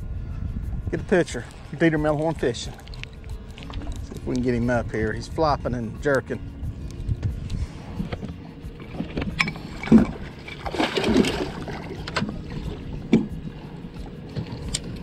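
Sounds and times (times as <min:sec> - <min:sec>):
fish splashing water: 0:08.8 - 0:15.0.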